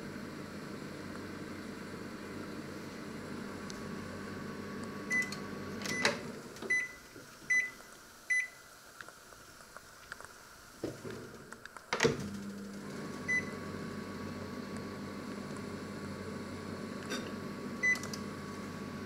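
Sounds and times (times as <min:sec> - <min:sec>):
microwave oven humming: 0:00.0 - 0:09.0, 0:10.5 - 0:19.0
microwave beeps: 0:05.0 - 0:08.6, 0:13.1 - 0:13.8, 0:17.8 - 0:18.3.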